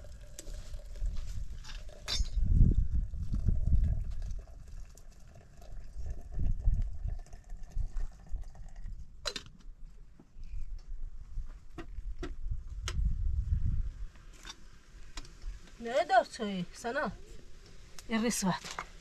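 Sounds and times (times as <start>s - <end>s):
wind rumble on microphone: 0.0s - 4.9s, 5.6s - 9.2s, 10.4s - 14.3s
water pouring into metal teapot: 0.0s - 9.2s.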